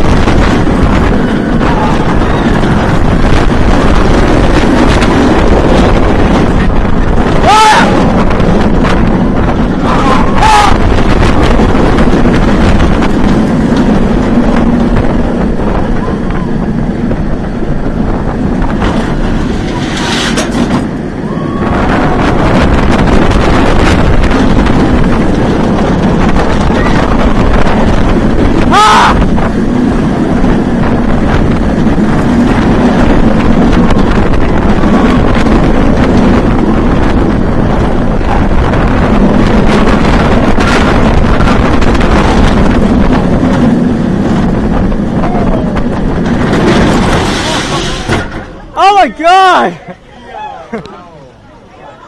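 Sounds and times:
roller coaster wheels roaring: 0.0s - 52.0s
wind rushing on microphone: 0.0s - 52.0s
rider yelling: 7.3s - 8.2s, 9.8s - 11.0s, 28.6s - 29.3s, 48.7s - 51.2s.

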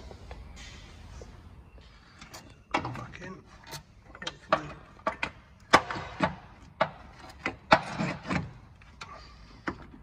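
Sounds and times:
hand tools knocking and clanking: 4.1s - 8.7s.

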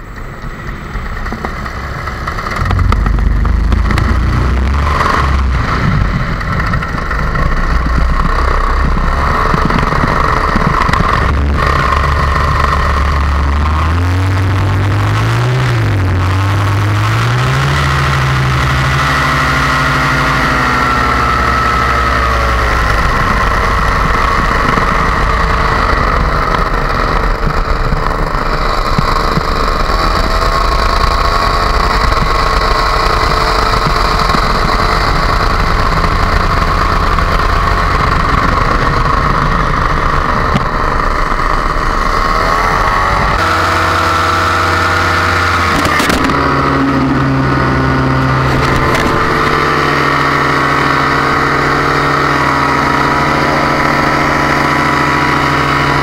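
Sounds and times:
paramotor engine and propeller: 0.0s - 56.0s
rushing air: 0.2s - 13.0s, 35.5s - 55.6s.

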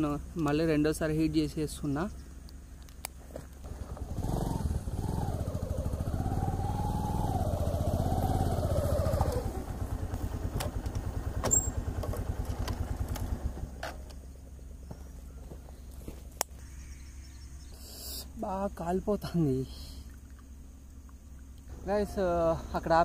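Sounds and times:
motorcycle engine running: 0.0s - 17.7s.

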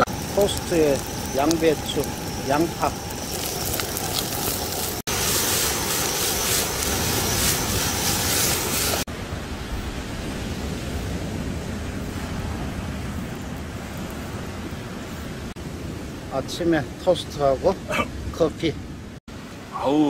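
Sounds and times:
food sizzling in a pan: 0.0s - 9.1s.

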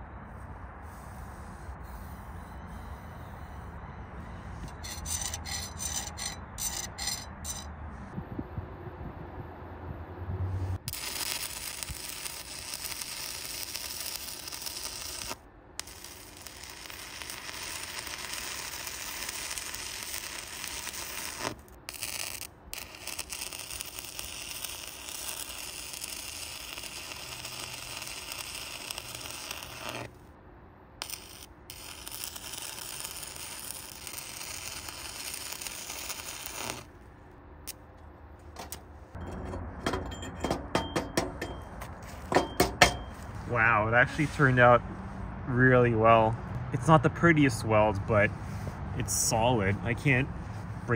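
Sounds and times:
welding arc crackling: 10.8s - 30.2s, 31.0s - 36.9s
slag hammer tapping metal: 39.2s - 43.1s.

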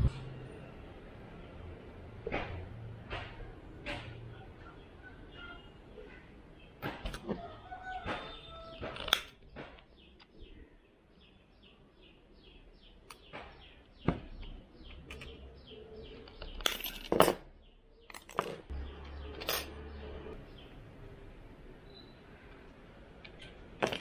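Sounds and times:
bird chirping: 4.2s - 22.6s.

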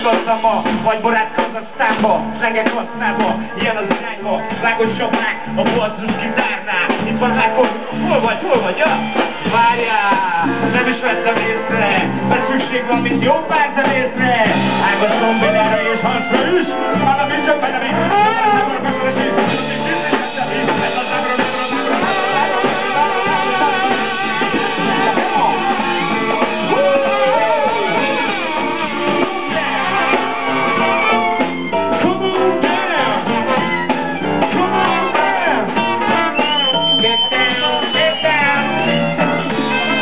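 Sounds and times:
guitar: 0.0s - 40.0s
live band playing: 0.0s - 40.0s
person singing: 0.0s - 40.0s
trumpet long high note: 15.0s - 19.2s, 21.0s - 40.0s.

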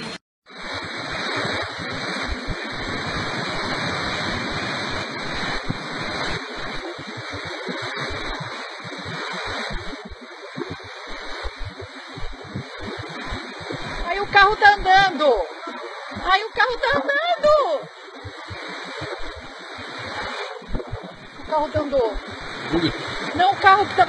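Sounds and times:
floodwater rushing: 0.6s - 24.0s.

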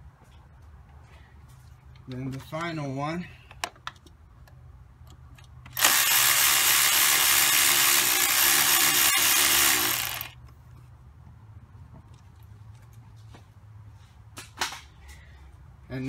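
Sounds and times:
power tool hissing whir: 5.8s - 10.4s.

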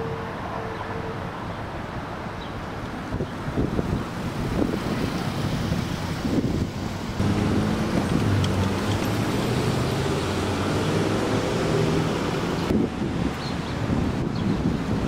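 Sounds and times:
car road and engine noise: 0.0s - 15.0s
wind buffeting microphone: 3.0s - 15.0s.

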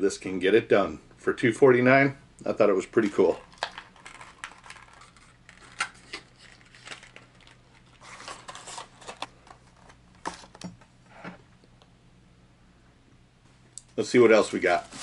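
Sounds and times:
plastic packaging crinkling: 3.0s - 10.0s, 14.4s - 15.0s.

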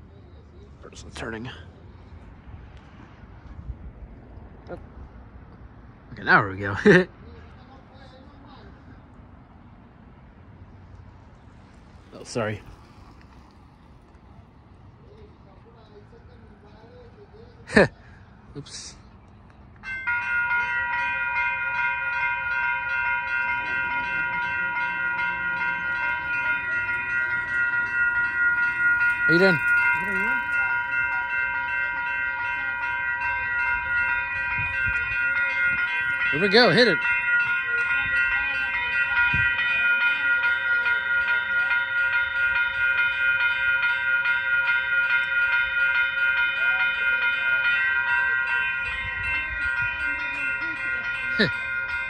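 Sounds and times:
railroad crossing warning bell: 10.6s - 14.1s, 19.7s - 52.0s.

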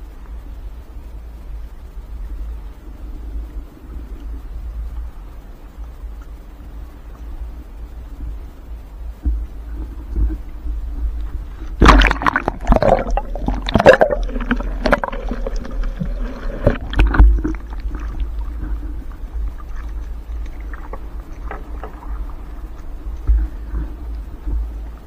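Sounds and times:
steady low rumble: 0.0s - 25.0s
water splashing against hull: 5.9s - 25.0s
knocks and clatters in a boat: 9.1s - 25.0s.

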